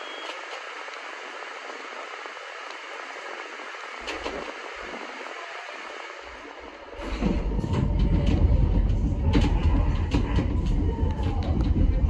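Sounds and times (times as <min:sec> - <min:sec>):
train rumble and rail clatter: 0:00.0 - 0:12.0.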